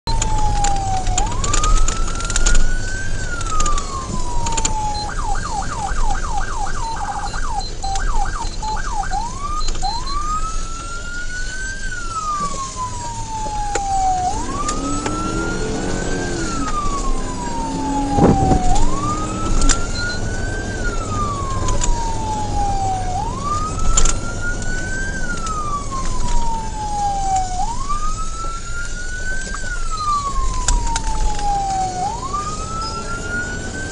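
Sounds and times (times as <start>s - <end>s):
vehicle road noise: 0.0s - 33.9s
police siren wailing: 0.1s - 33.9s
siren fast yelp: 0.1s - 33.9s.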